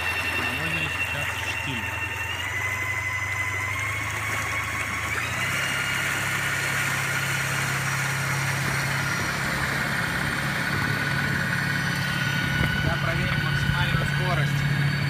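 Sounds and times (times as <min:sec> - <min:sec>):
electric outboard motor whine: 0:00.0 - 0:15.0
low hum: 0:00.0 - 0:15.0
water rushing: 0:00.0 - 0:15.0.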